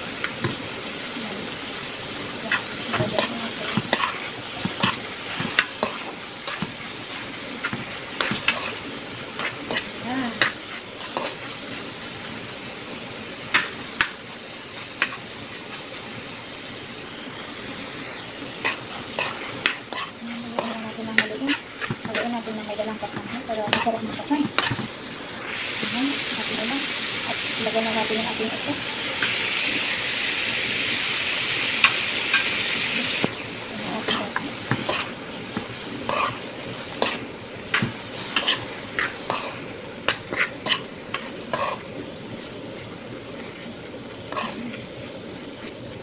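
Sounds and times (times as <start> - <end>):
food sizzling in a pan: 0.0 - 46.0
metal spoon scraping a pan: 2.4 - 11.6, 14.8 - 15.8, 18.2 - 25.0, 31.8 - 41.9, 44.3 - 44.8.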